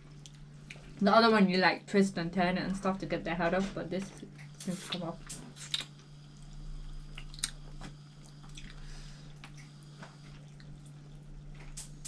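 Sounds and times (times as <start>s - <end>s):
steady low hum: 0.0s - 12.0s
chewing: 4.2s - 12.0s.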